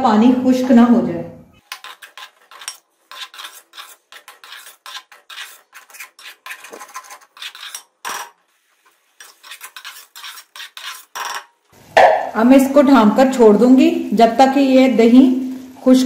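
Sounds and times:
metal spoon scraping a metal pan: 1.6 - 8.4, 9.2 - 11.6.

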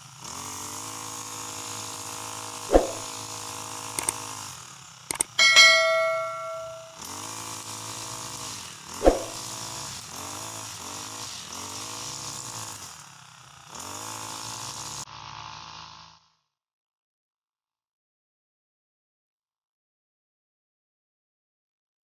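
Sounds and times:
chime ringing: 5.2 - 7.0.

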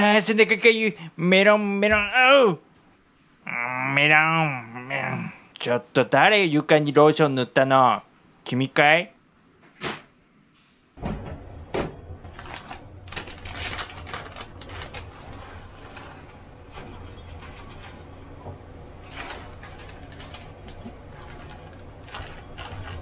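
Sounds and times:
steady low hum: 11.0 - 23.0
plastic bag crinkling: 12.3 - 23.0
crumbs crackling onto plate: 18.9 - 23.0.

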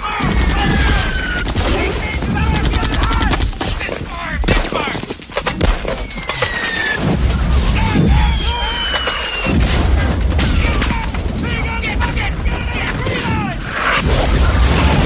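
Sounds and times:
men shouting: 0.0 - 3.5, 7.4 - 13.6
rifle and machine-gun fire: 0.1 - 5.0, 9.3 - 15.0
booming explosions: 7.0 - 15.0.

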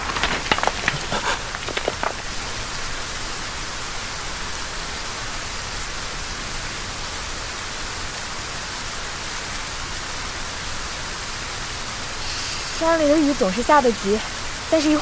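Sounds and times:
heavy rain pouring: 0.0 - 15.0.

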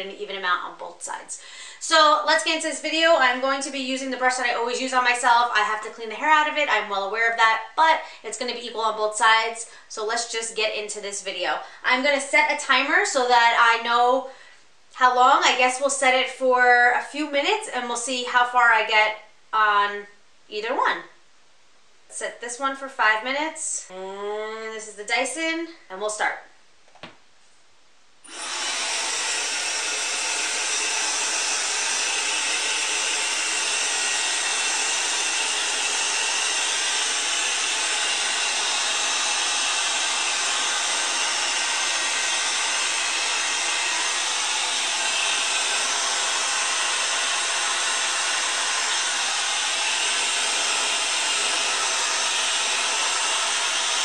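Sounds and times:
hair dryer blowing air: 28.2 - 54.0.

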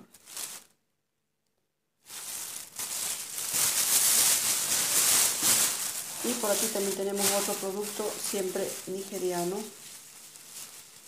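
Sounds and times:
plastic bag crinkling: 0.0 - 0.8, 2.0 - 11.0.

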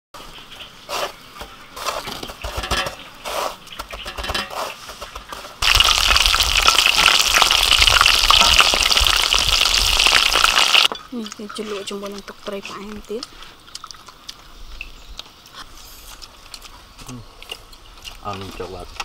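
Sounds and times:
shrimp sizzling in hot oil: 0.2 - 14.0
crunching and rustling breadcrumbs: 15.1 - 19.0.

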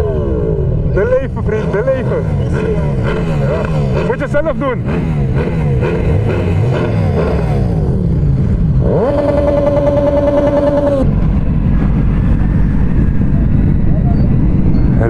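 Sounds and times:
motorcycle engines revving: 0.0 - 15.0
wind: 0.0 - 15.0.

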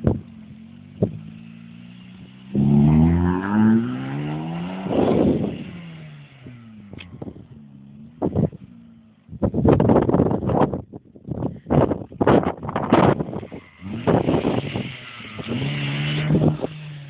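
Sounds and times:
car engine revving: 0.0 - 9.1, 12.9 - 17.0.

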